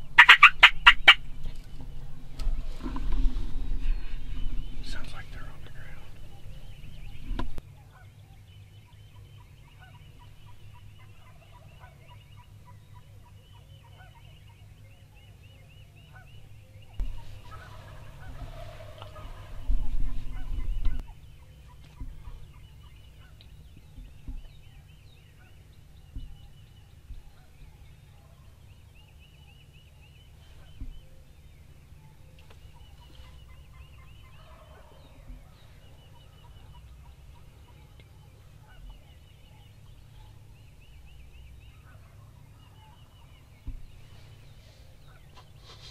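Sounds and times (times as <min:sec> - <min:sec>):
turkey gobbling: 0:00.0 - 0:01.3, 0:16.1 - 0:28.5, 0:32.0 - 0:40.5, 0:41.6 - 0:43.5.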